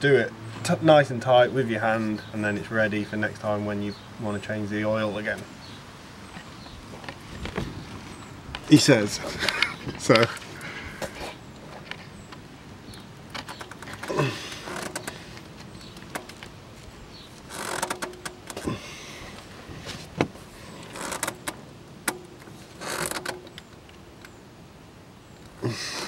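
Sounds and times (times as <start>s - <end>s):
oil filter rubbing and squeaking: 13.3s - 18.7s, 19.4s - 23.6s.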